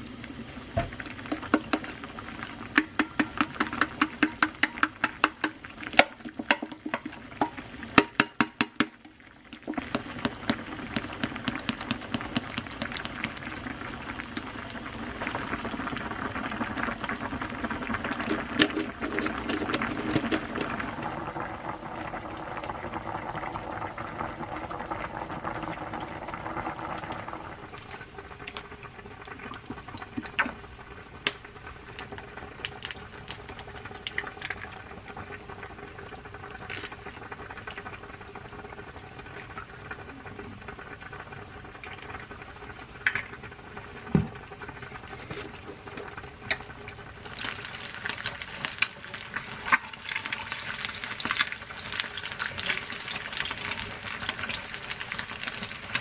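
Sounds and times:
egg frying in oil: 0:00.0 - 0:56.0
stew bubbling in a pot: 0:00.0 - 0:56.0.

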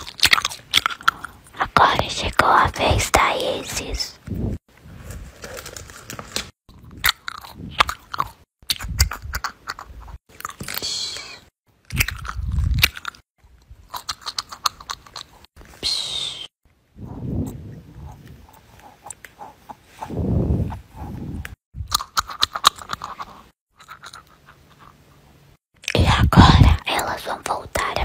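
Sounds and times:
paper crinkling and crackling: 0:04.3 - 0:06.6.

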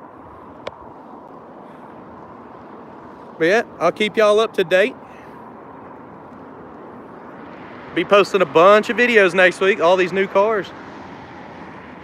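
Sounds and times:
outdoor background noise: 0:00.0 - 0:12.0.

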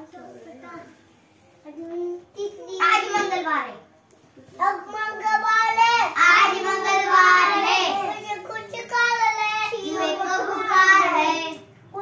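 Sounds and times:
child singing: 0:05.6 - 0:11.6.

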